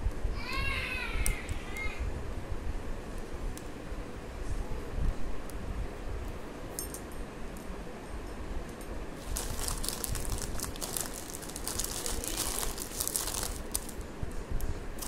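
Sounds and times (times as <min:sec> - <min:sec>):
plastic wrapping crinkling: 0:09.2 - 0:14.0.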